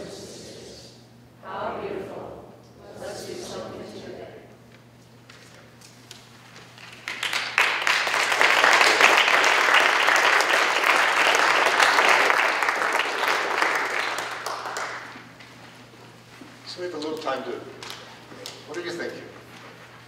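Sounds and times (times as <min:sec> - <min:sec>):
audience applauding: 0:06.8 - 0:15.4.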